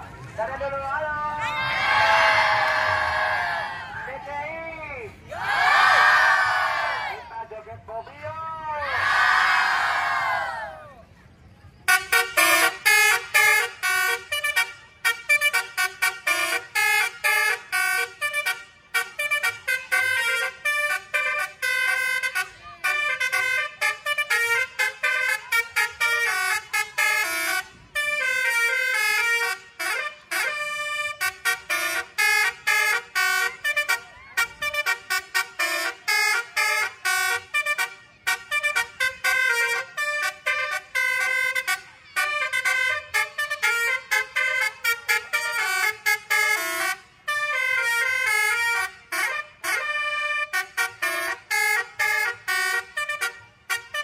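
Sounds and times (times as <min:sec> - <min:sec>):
musical air horn tune: 0:11.9 - 0:54.0.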